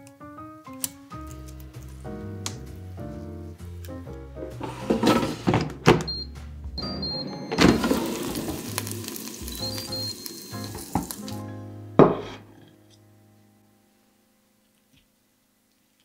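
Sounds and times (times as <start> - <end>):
background music: 0.0 - 14.8
air fryer basket clunk: 6.8 - 8.7
shrimp sizzling: 7.6 - 12.6.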